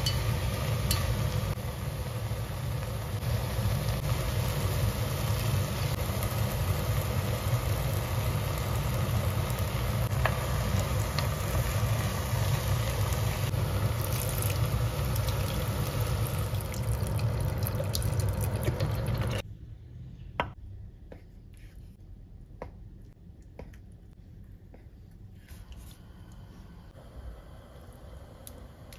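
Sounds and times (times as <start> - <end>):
food sizzling in pot: 0.0 - 19.4.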